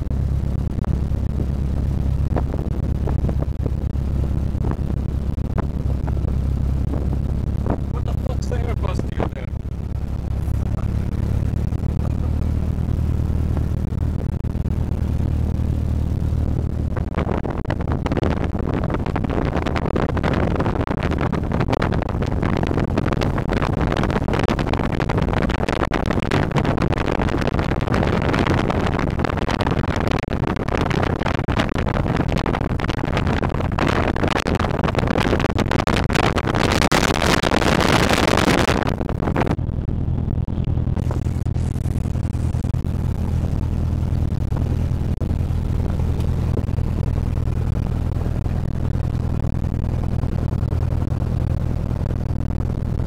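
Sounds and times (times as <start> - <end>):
aircraft piston engine drone: 0.0 - 18.2, 40.6 - 53.0.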